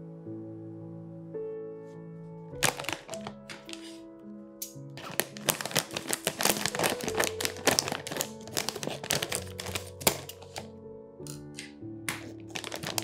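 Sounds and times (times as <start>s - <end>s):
soft background music: 0.0s - 13.0s
plastic crinkling: 2.6s - 4.0s, 4.7s - 10.7s, 12.1s - 13.0s
scissors snipping plastic bag: 2.6s - 4.0s, 4.6s - 10.7s, 11.3s - 13.0s.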